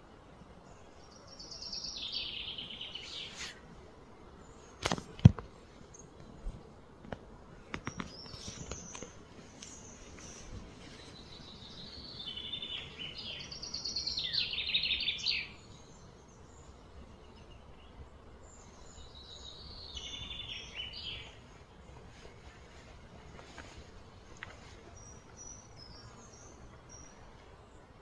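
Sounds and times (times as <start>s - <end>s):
bird singing high trills: 11.2s - 16.7s, 18.6s - 21.4s.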